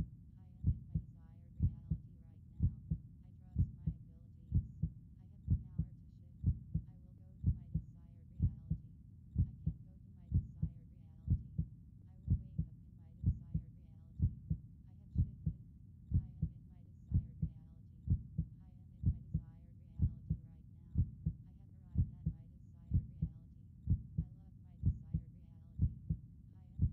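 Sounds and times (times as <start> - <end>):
heartbeat thumping: 0.6 - 2.0, 2.6 - 3.0, 3.6 - 8.8, 9.4 - 10.7, 11.3 - 11.7, 12.3 - 14.6, 15.2 - 20.4, 21.0 - 21.4, 22.0 - 25.2, 25.8 - 26.2.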